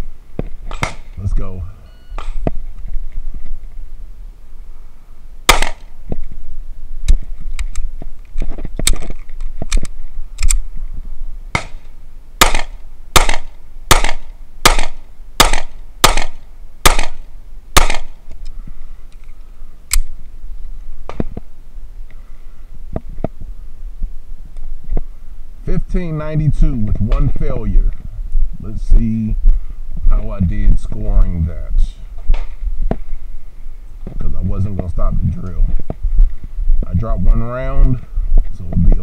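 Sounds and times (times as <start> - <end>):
pistol shots: 0.7 - 1.1, 5.5 - 5.9, 11.5 - 17.2, 17.8 - 18.2
pistol clicks: 5.5 - 5.9, 8.8 - 10.6, 19.9 - 20.1.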